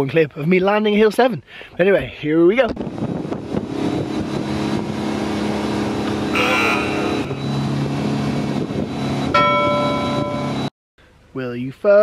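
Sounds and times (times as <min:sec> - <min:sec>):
boat engine running: 0:02.8 - 0:10.7
loud steady tone: 0:03.6 - 0:10.7.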